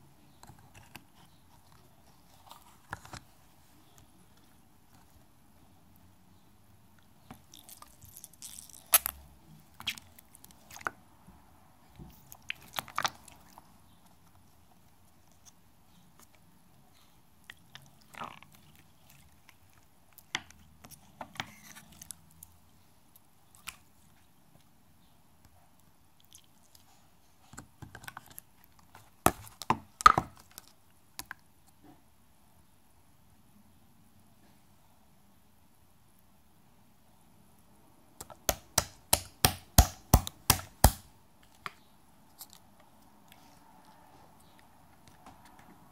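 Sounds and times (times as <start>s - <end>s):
slime squelching clicks and crackles: 7.3s - 11.0s, 12.3s - 13.6s.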